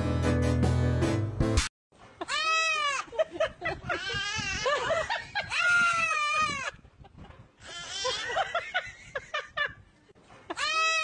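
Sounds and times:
goat calling: 10.5 - 11.0.

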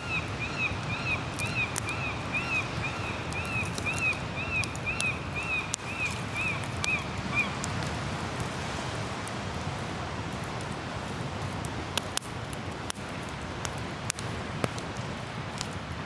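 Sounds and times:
bird calls: 0.0 - 7.7
campfire crackling and popping: 0.0 - 16.0
ocean surf: 0.0 - 16.0.

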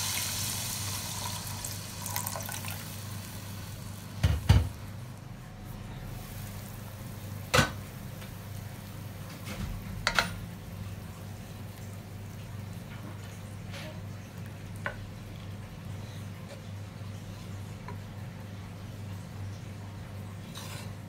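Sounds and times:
liquid pouring into pot: 0.0 - 3.9.

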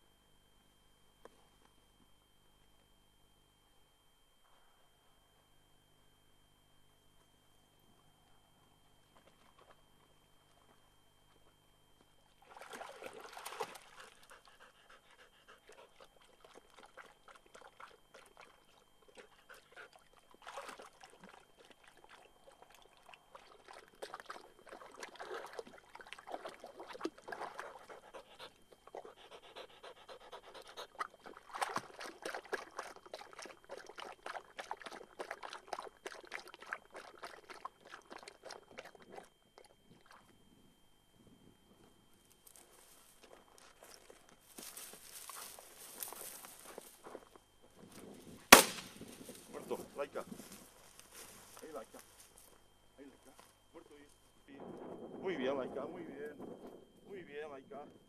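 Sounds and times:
water splashing: 12.4 - 14.2, 20.1 - 27.9
dog panting: 13.8 - 17.4, 19.1 - 20.1, 27.5 - 31.4.

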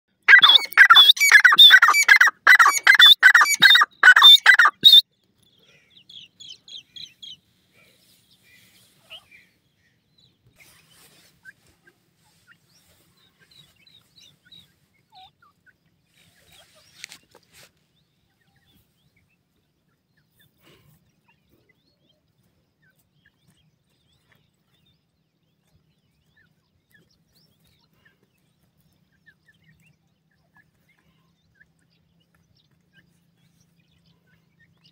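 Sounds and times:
faint high peeps: 0.2 - 5.0
francolin calling: 0.3 - 5.0.

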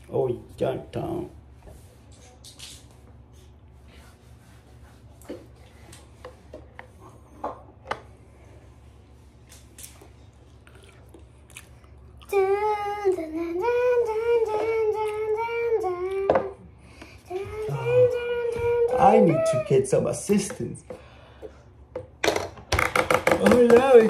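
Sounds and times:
child singing wordlessly: 12.2 - 16.6, 17.3 - 19.8
plastic toys clicking and tapping: 22.0 - 24.0.

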